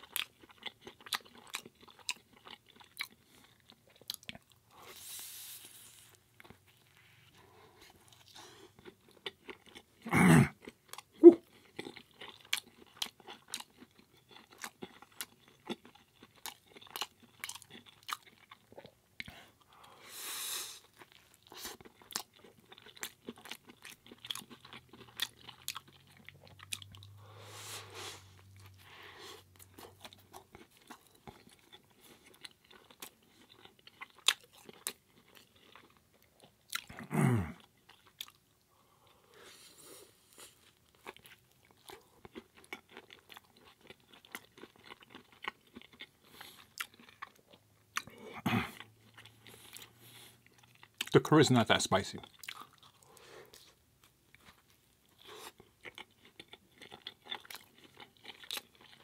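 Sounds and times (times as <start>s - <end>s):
chewing and biting food: 0.0s - 5.1s, 5.7s - 20.0s, 20.8s - 51.4s, 52.0s - 59.0s.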